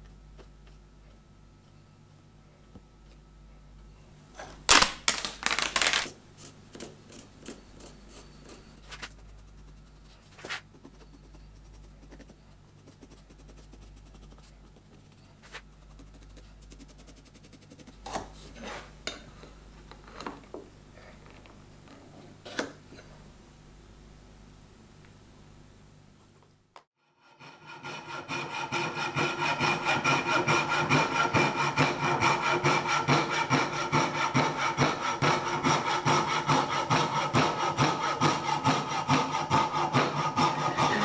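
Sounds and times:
paper rustling: 4.7s - 6.1s, 10.1s - 10.7s
pencil scratching on wood: 7.1s - 18.8s, 27.2s - 41.0s.

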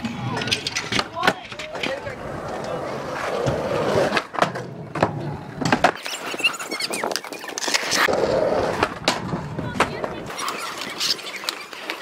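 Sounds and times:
skateboard clacking on ground: 0.0s - 12.0s
skateboard wheels rolling on concrete: 0.0s - 12.0s
faint high squeaks: 6.0s - 8.1s.

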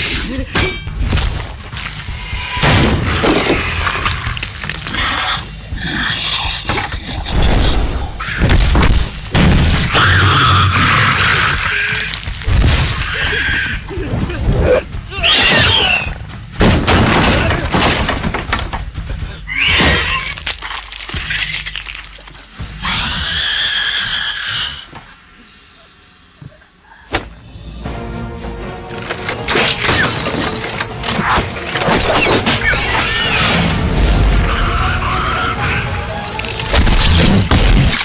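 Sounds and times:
dramatic music: 0.0s - 26.2s, 27.2s - 38.0s
wood crashing and splintering: 16.6s - 19.0s
creature's high-pitched cries: 22.8s - 24.9s, 34.4s - 36.3s.

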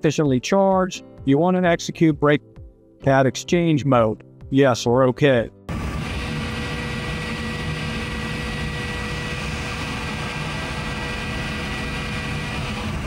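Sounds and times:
brake motor humming with whine: 5.7s - 13.0s.

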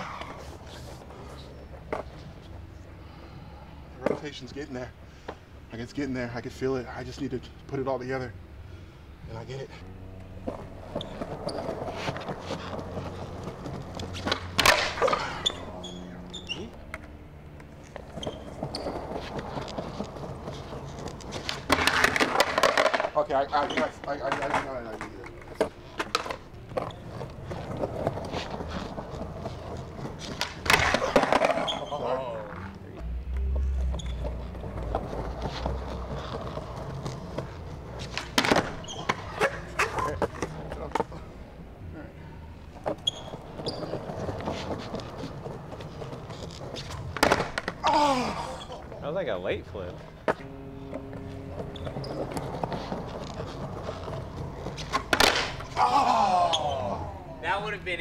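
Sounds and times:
skateboard wheels rolling on tiles: 10.1s - 32.8s, 33.4s - 41.2s, 42.6s - 57.2s
skateboard deck clattering: 10.4s - 15.9s, 17.9s - 32.6s, 34.1s - 41.1s, 42.8s - 47.9s, 50.2s - 55.8s
skateboard tail pop: 14.2s - 15.2s, 54.9s - 55.6s
skateboard landing clack: 14.2s - 15.4s, 21.2s - 23.2s, 30.2s - 31.8s, 38.1s - 40.5s, 47.0s - 47.8s, 54.8s - 55.8s.

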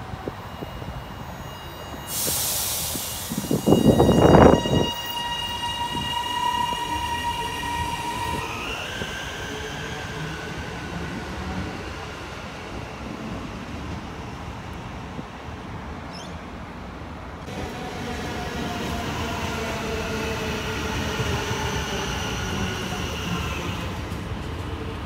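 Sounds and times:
traction motors whining: 3.0s - 12.7s.

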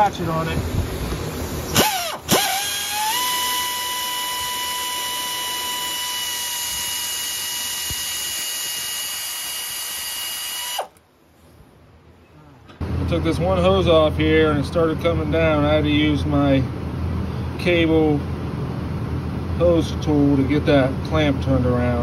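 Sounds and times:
electric ratchet motor spinning: 1.7s - 11.0s.

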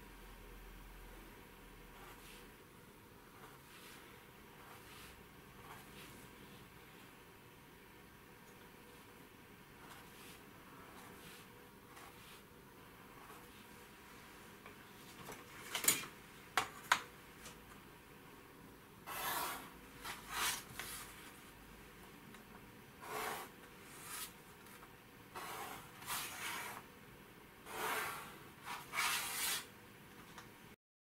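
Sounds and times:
pencil scratching on paper: 2.0s - 2.4s, 3.3s - 6.2s, 9.8s - 12.4s, 19.0s - 20.8s, 23.0s - 24.4s, 25.3s - 26.8s, 27.6s - 29.7s.

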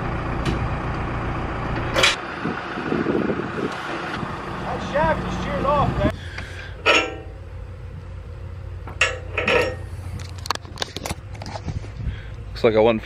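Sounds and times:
engine idling low: 0.0s - 13.0s
metal parts knocking and clinking: 6.8s - 7.3s, 9.0s - 11.1s.

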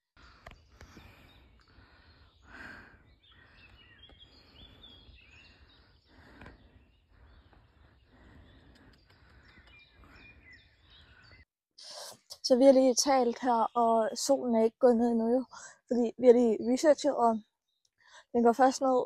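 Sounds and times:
distant birds chirping: 0.2s - 14.4s.

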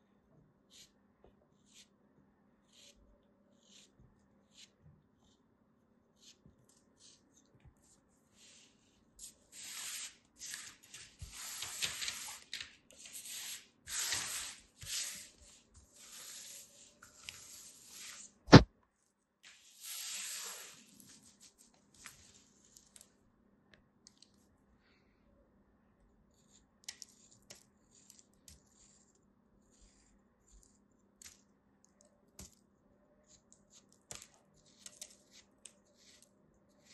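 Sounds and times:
sharp knock: 18.5s - 18.7s.

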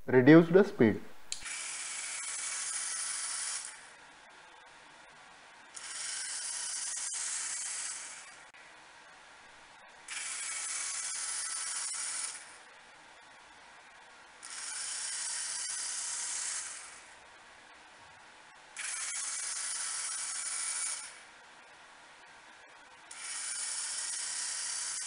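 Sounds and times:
robot wheel motors whirring: 1.4s - 3.9s, 5.7s - 8.5s, 10.1s - 12.6s, 14.4s - 17.1s, 18.8s - 21.2s, 23.1s - 25.0s.

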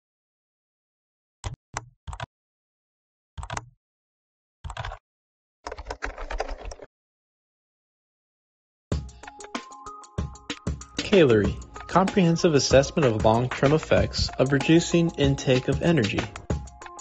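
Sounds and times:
keyboard typing: 1.5s - 2.3s, 3.4s - 3.7s, 4.6s - 5.0s, 5.6s - 6.9s, 10.5s - 12.2s.

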